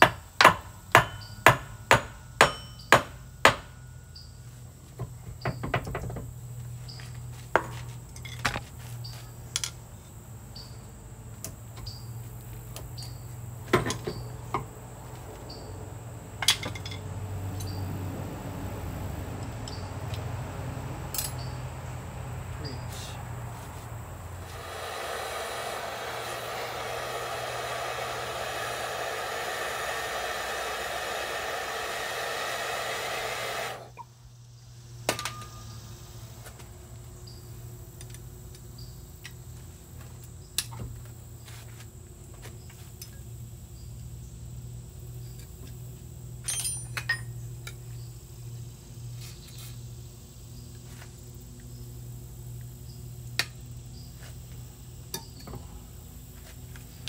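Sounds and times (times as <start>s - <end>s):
air tool rushing: 24.4s - 34.0s
metallic tool clinks: 46.4s - 47.4s.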